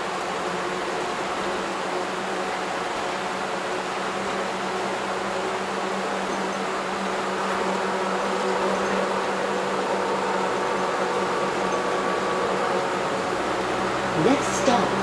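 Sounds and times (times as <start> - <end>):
bus engine hum: 0.0 - 15.0
road noise: 0.0 - 15.0.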